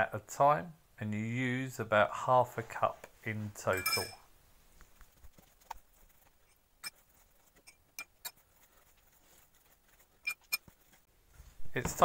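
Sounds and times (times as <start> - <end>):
spatula stirring dough: 5.0 - 11.2.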